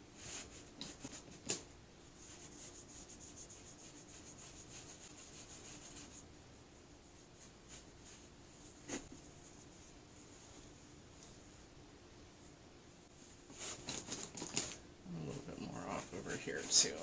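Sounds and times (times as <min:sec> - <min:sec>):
cloth rubbing scratchily: 0:02.2 - 0:06.2, 0:07.0 - 0:10.7, 0:15.1 - 0:17.0.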